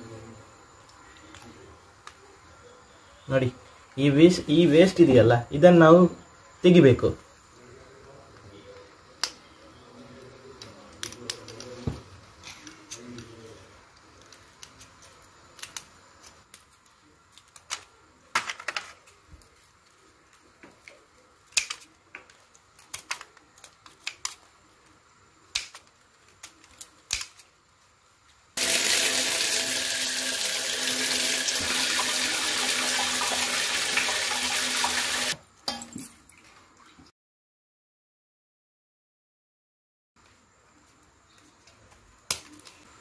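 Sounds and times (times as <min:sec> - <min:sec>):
scissors snipping crab shell: 0:25.5 - 0:27.5
water running from a tap: 0:28.6 - 0:35.4.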